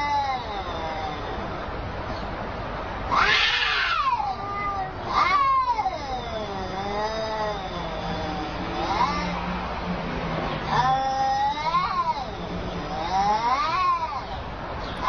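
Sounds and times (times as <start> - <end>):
harsh cat cries: 0.0 - 1.7, 3.0 - 9.6, 10.6 - 14.4
cats yowling: 0.0 - 2.2, 3.0 - 9.8, 10.5 - 15.0.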